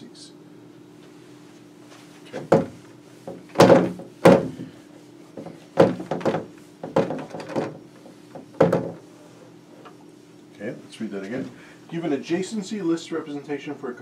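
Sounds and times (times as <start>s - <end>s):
eraser wiping whiteboard: 7.9s - 10.4s.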